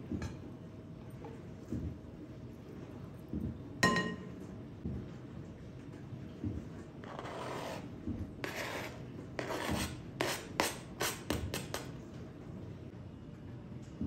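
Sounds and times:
knife scraping cutting board: 7.0s - 11.9s.

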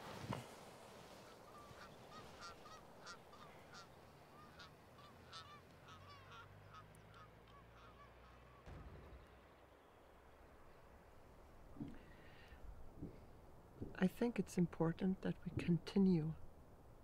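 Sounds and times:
geese honking: 1.2s - 8.7s.

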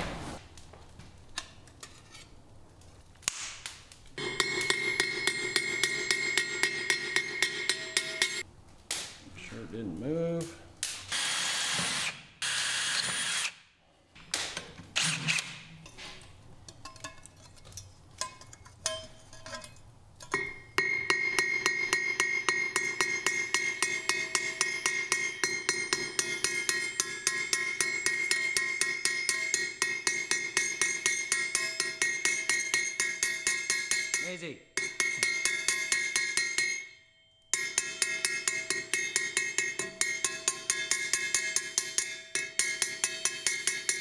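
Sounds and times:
hammer striking rivets on anvil: 4.2s - 8.4s, 18.2s - 36.9s, 37.5s - 44.0s
high metallic ring: 4.2s - 8.4s, 18.2s - 44.0s
electric drill running: 11.1s - 13.6s.

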